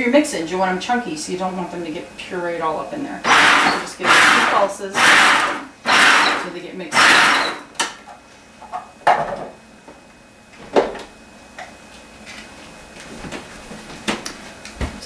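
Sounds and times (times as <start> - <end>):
food processor chopping: 3.2 - 7.9.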